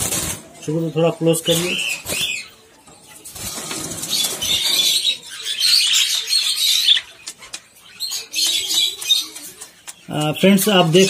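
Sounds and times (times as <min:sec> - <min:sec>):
budgerigars chattering and fluttering: 0:00.0 - 0:11.0.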